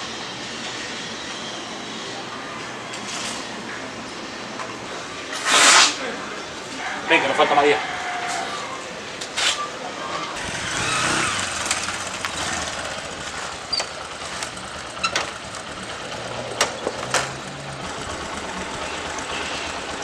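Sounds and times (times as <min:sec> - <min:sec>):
small motorcycle engine running: 0:10.4 - 0:20.0.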